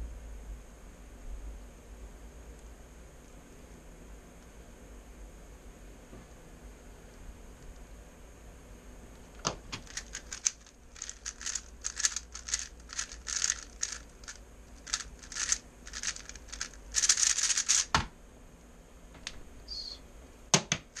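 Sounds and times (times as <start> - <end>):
plastic cube clicking and rattling: 9.4 - 18.0.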